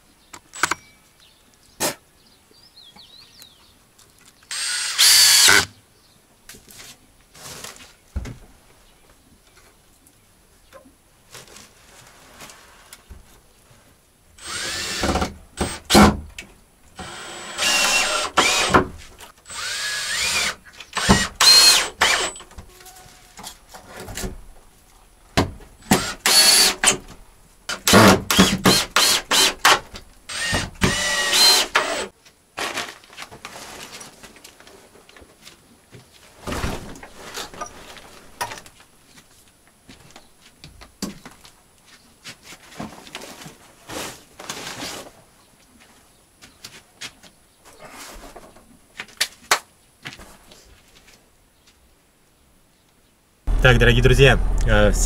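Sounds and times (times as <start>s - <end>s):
drill driving screws into wood: 4.5s - 5.7s, 14.4s - 16.2s, 17.0s - 18.9s, 19.5s - 22.4s, 25.8s - 27.0s, 27.7s - 32.1s.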